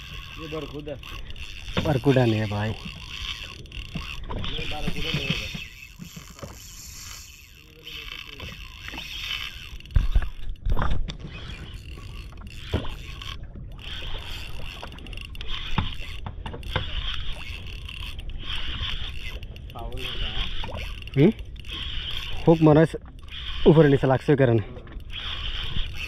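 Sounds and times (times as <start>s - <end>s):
water noise: 0.0s - 26.0s
wind: 0.0s - 26.0s
knocks and thumps on boat: 1.6s - 3.2s, 3.8s - 6.6s, 9.9s - 11.4s, 15.6s - 17.4s.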